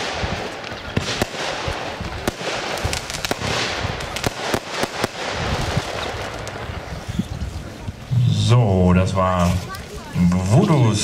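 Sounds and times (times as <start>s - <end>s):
firework sharp bangs: 0.0s - 7.1s
crackling hiss of bursting stars: 0.0s - 8.0s.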